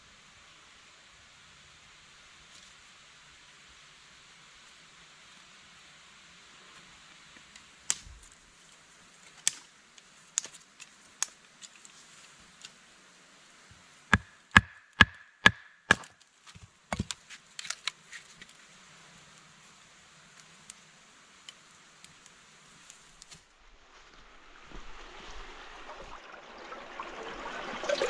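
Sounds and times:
wood fire crackling: 7.4 - 12.8, 14.1 - 24.8
chopping knocks on wood: 14.2 - 16.1.

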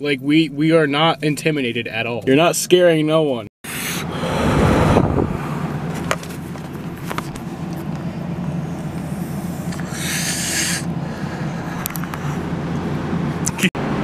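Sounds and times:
car idling from inside cabin: 5.4 - 13.7
breathy hiss: 9.0 - 11.6.

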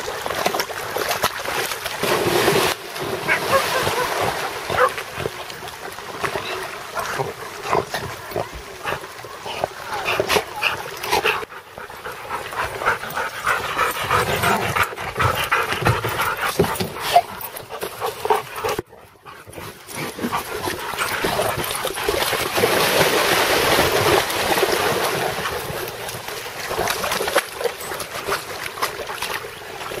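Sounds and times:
water splashing: 0.0 - 30.0
dogs barking: 3.3 - 5.0
dogs whining and panting: 10.6 - 21.9.

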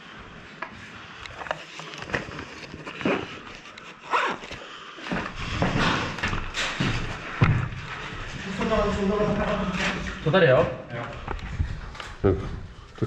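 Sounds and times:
clothing and gear rustling: 0.7 - 10.2.

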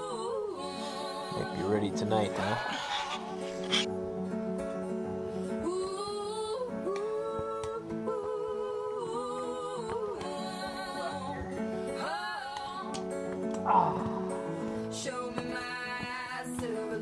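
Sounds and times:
person singing: 0.0 - 2.9, 5.6 - 13.0, 13.7 - 17.0
sustained guitar chords: 3.3 - 5.7, 13.0 - 15.5.

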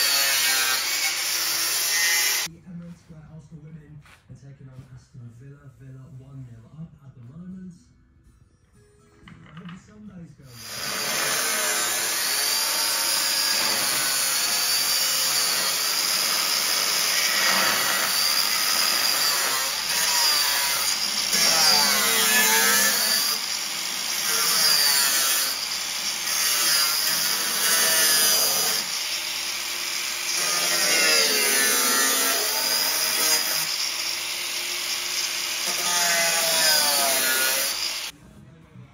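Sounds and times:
angle grinder cutting metal: 0.0 - 2.5, 10.6 - 38.1.

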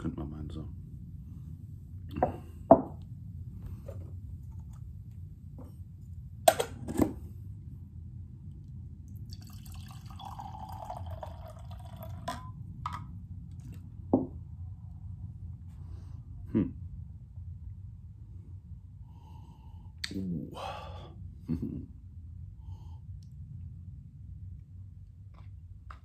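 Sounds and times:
drink trickling into glass: 9.3 - 12.5.

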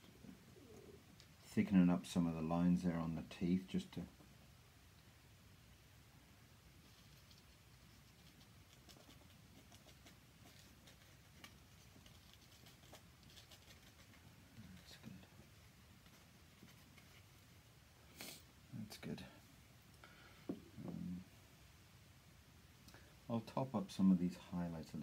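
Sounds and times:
brush scratching on paper: 6.8 - 17.4
faint low sound: 18.6 - 25.0.

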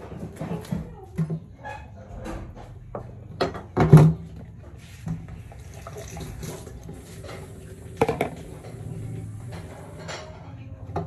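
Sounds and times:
tap water running into sink: 5.4 - 10.0.

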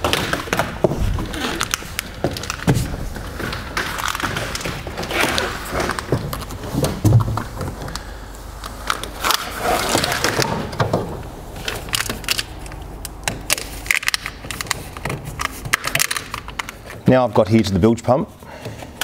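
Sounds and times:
wires and plastic conduit rustling: 0.0 - 19.0.

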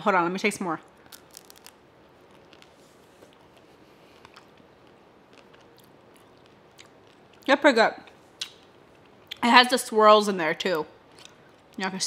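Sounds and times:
person eating ice cream bar: 0.9 - 9.4, 11.0 - 11.8.

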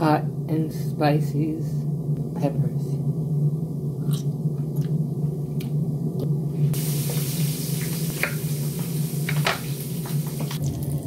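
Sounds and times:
steady low hum: 0.0 - 11.0
peppers sizzling in hot oil: 6.8 - 11.0.

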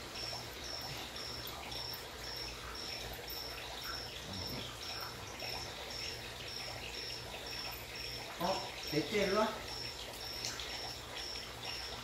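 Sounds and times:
cricket chirping: 0.0 - 12.0
low steady hum: 0.0 - 12.0.

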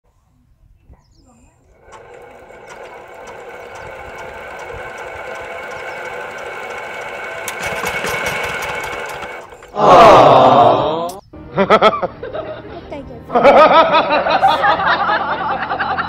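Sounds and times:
flywheel whirring: 1.6 - 10.0
diesel engine knocking: 1.9 - 9.8.

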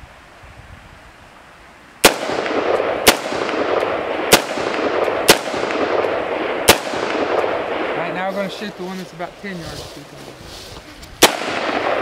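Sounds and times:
steady rush of noise: 0.0 - 12.0
rifle shots: 2.0 - 8.7, 11.2 - 12.0.

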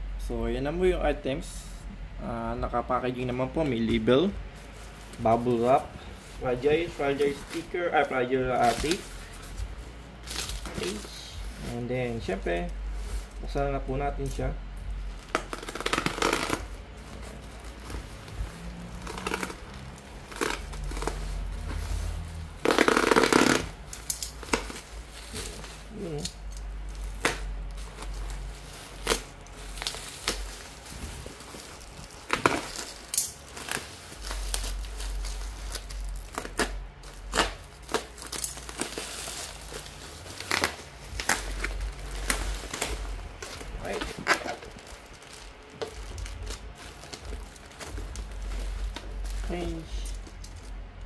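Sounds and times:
bubble wrap crinkling: 2.3 - 51.0
sharp clicks and rustles: 15.2 - 51.0
loud plastic rip: 15.3 - 16.7, 22.6 - 23.8, 36.2 - 39.0.

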